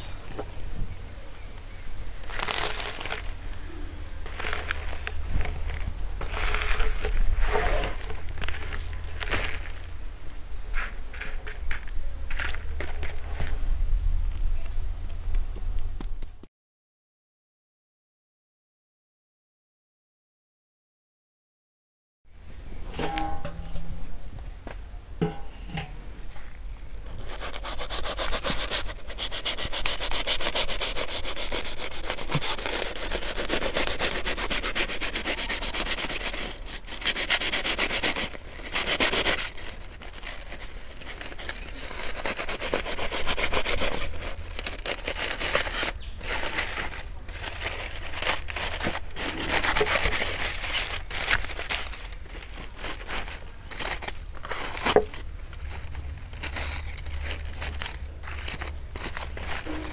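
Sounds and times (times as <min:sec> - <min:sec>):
knife sawing through foil: 0:04.2 - 0:09.8, 0:27.1 - 0:59.9.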